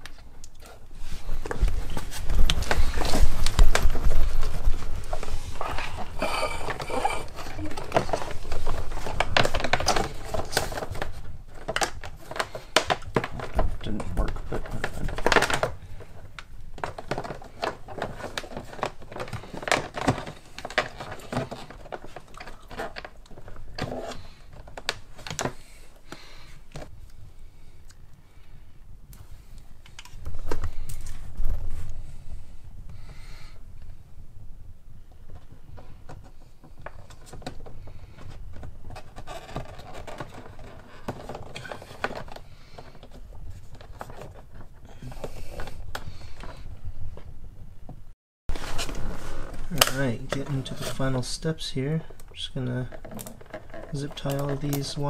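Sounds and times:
hands handling plastic trim: 0:52.1 - 0:55.0.

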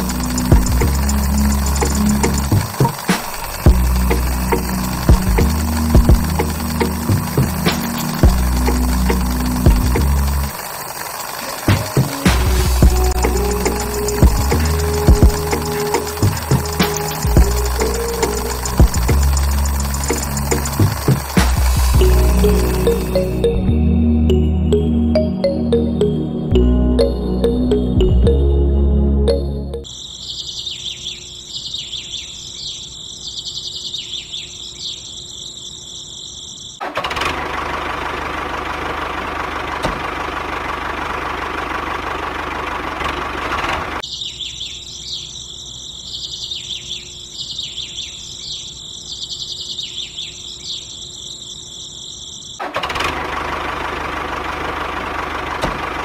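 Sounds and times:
thin high whine: 0:00.0 - 0:24.0
birds chirping: 0:00.0 - 0:28.5, 0:29.3 - 0:36.8, 0:44.0 - 0:52.6.

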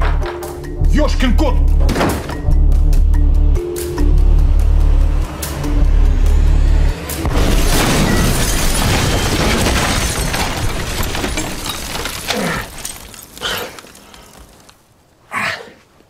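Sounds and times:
rumble and falling debris: 0:07.2 - 0:14.9
glass shattering: 0:07.3 - 0:14.6.

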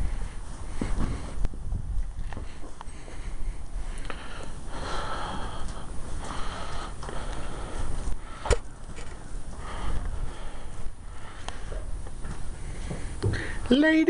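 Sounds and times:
handling rustling and rumble: 0:00.0 - 0:14.0.

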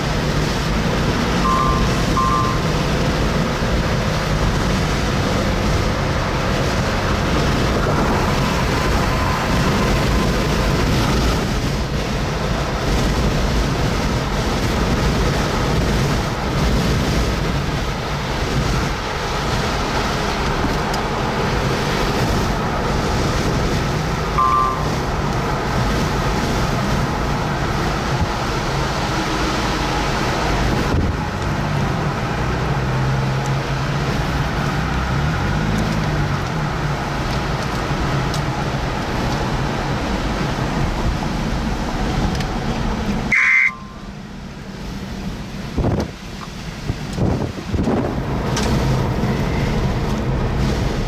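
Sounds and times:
wind rushing over microphone: 0:00.0 - 0:43.9, 0:44.6 - 0:51.0
vehicle running: 0:00.0 - 0:51.0
brief tone: 0:01.4 - 0:02.8, 0:09.0 - 0:09.9, 0:24.4 - 0:25.1, 0:43.3 - 0:44.1.

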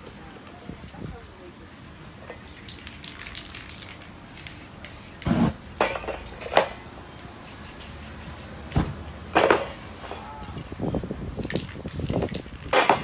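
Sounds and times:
spray-paint can hissing: 0:02.5 - 0:05.6, 0:07.4 - 0:08.8, 0:11.4 - 0:12.7.

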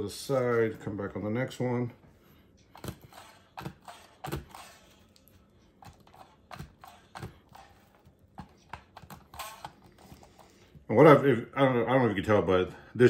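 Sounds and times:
meat tenderizer knocks and clicks: 0:02.8 - 0:04.9, 0:05.8 - 0:09.9.

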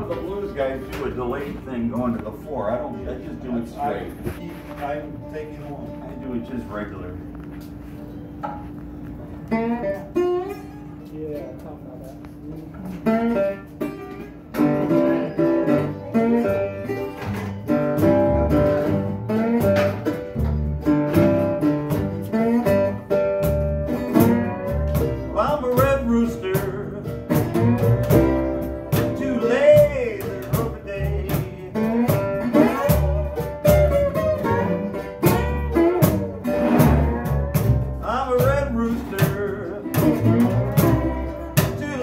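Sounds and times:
acoustic guitars: 0:00.0 - 0:42.0
cajon beat: 0:00.0 - 0:42.0
plucked upright bass: 0:12.8 - 0:42.0.

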